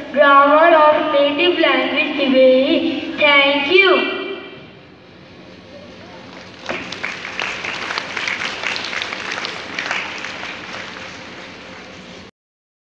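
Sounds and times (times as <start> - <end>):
audience applauding: 6.2 - 12.3.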